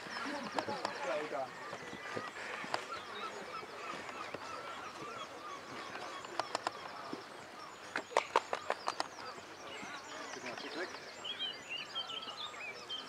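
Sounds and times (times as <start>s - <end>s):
birds chorus of short calls: 0.0s - 13.0s.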